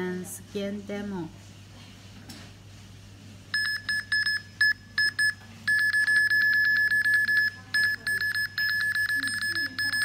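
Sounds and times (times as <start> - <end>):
barcode scanner beeping: 3.6 - 10.0.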